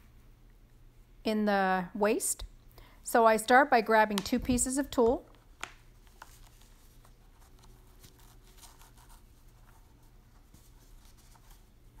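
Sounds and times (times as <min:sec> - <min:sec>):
low steady hum: 0:00.0 - 0:12.0
fabric rustling and scratching: 0:05.9 - 0:12.0.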